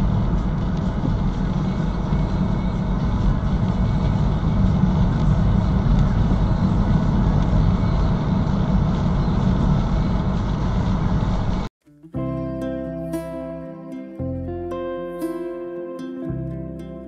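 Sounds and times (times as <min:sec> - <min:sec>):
car road and engine noise: 0:00.0 - 0:11.7.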